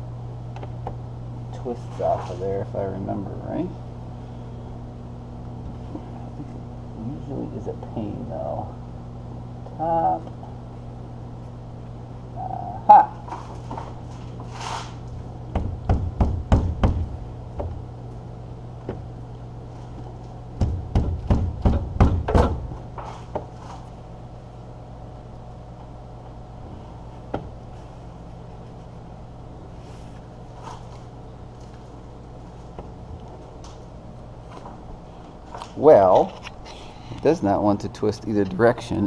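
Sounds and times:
sharp knocks on plastic housing: 20.6 - 22.6.

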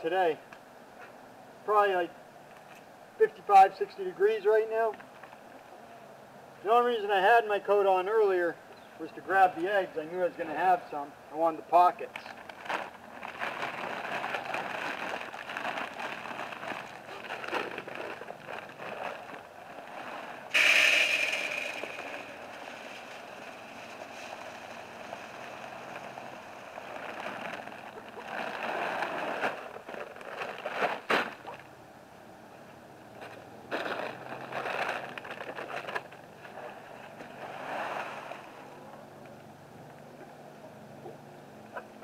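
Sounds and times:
plastic bags rustling: 12.3 - 20.5, 21.2 - 31.6, 33.3 - 36.8
feed pouring into metal feeder: 20.5 - 24.1
loud clatter: 20.5 - 29.7.

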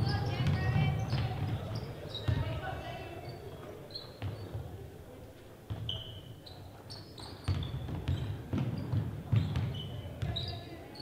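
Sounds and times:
basketball bouncing on hardwood: 0.0 - 2.6, 7.5 - 10.4
sneakers squeaking on court: 0.0 - 4.8, 5.7 - 11.0.

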